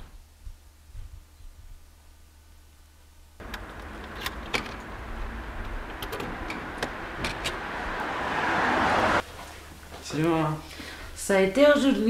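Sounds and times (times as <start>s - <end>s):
road traffic noise: 3.4s - 10.0s.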